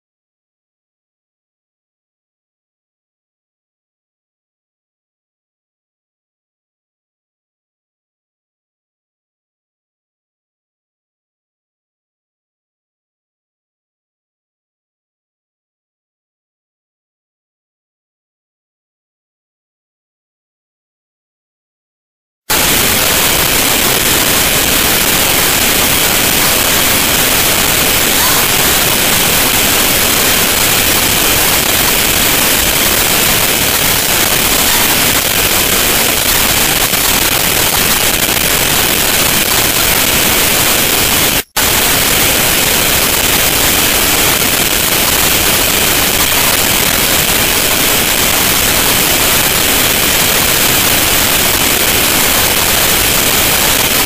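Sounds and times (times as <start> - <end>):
loud steady hiss: 22.5 - 54.0.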